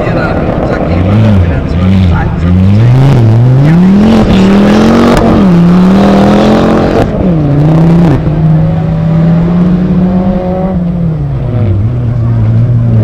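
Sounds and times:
race car engine accelerating: 0.0 - 13.0.

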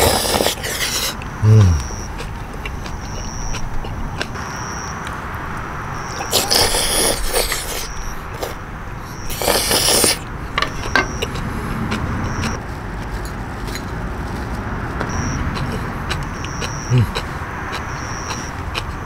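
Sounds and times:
person slurping noodles: 0.0 - 1.9, 6.2 - 8.6, 9.3 - 10.2
low rumble of traffic: 0.0 - 19.0.

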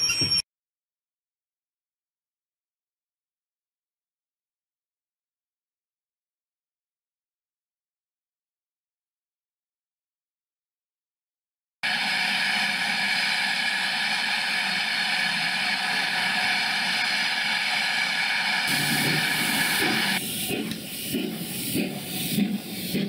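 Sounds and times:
steam locomotive hissing: 11.8 - 23.0.

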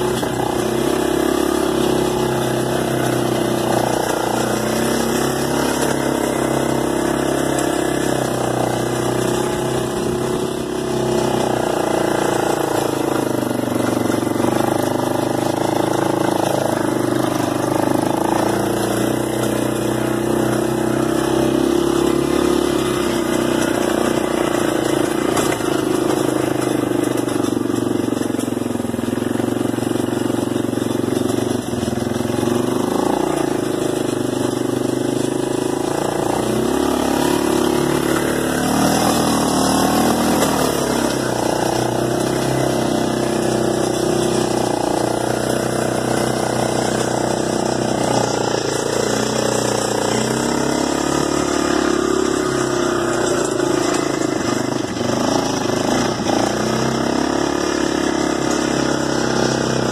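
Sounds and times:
quad bike engine running: 0.0 - 59.9.

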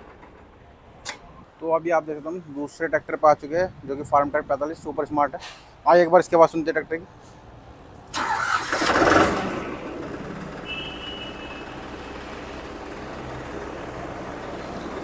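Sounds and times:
tractor diesel engine starting and idling: 8.1 - 15.0.

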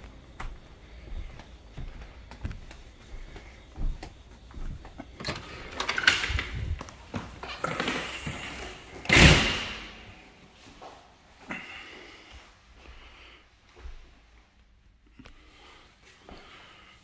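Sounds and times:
doors rattling and knocking: 4.8 - 7.6
door banging shut: 9.0 - 10.0.

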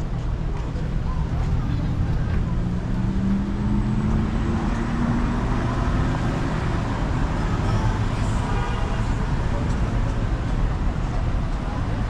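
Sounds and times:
low traffic rumble: 0.0 - 12.0
vehicle engine pulling away: 1.5 - 8.1.

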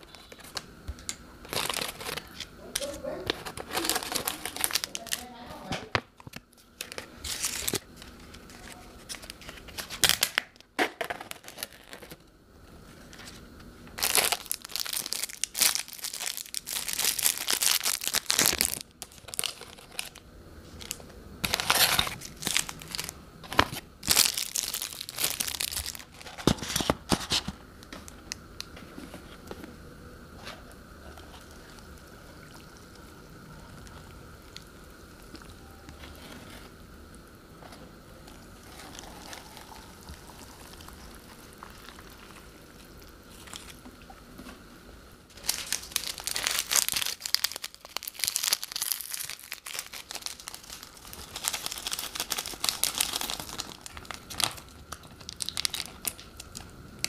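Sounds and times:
plastic sachets crinkling and tearing: 0.0 - 12.2, 14.0 - 28.7, 38.2 - 43.8, 45.3 - 56.8
water pouring into cups: 31.2 - 33.2, 38.2 - 43.2.

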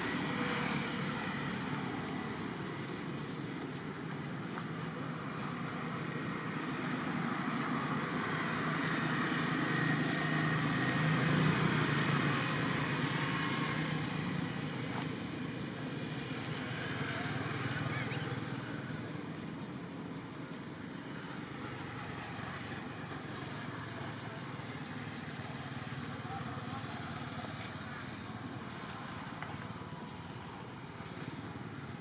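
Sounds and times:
vehicle passing by: 5.2 - 15.0.

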